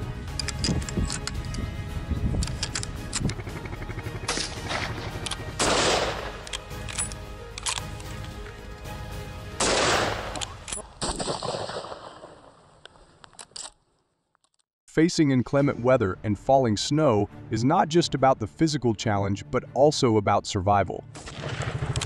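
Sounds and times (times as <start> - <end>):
quick gunshots: 4.2 - 6.4, 9.6 - 12.5
loud ringing gunshot reports: 5.6 - 6.4, 9.6 - 10.3.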